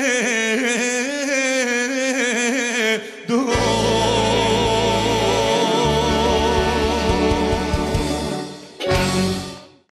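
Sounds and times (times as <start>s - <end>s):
folk-pop band playing: 3.5s - 9.9s.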